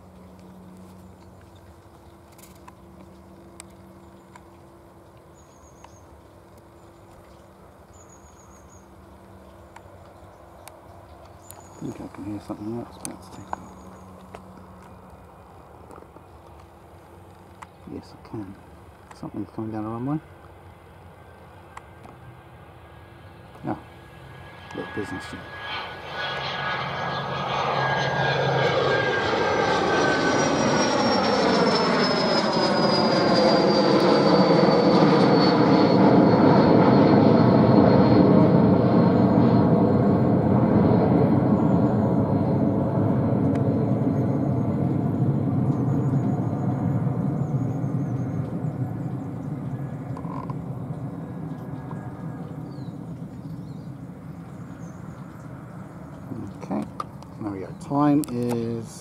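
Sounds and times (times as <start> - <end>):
jet engine noise: 0.0 - 59.0
high thin engine whine: 20.0 - 59.0.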